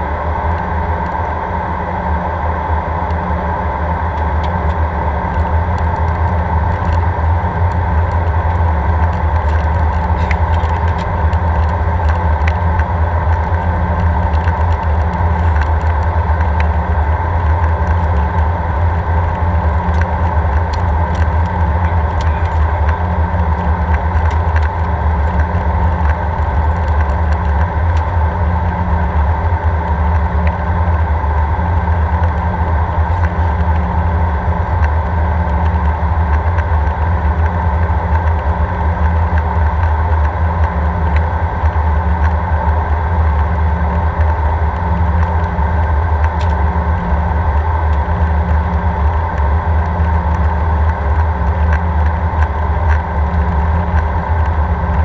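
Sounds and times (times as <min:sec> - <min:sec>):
airplane cabin rumble: 0:00.0 - 0:55.0.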